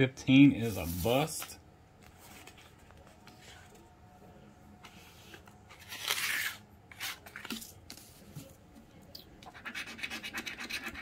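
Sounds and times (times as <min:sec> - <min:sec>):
paper rustling: 0:02.1 - 0:03.8.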